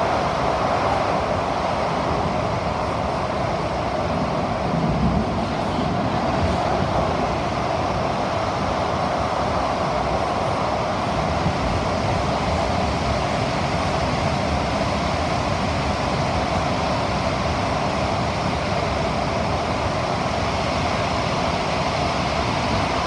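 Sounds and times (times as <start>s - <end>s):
train wheels rumbling: 0.0s - 23.0s.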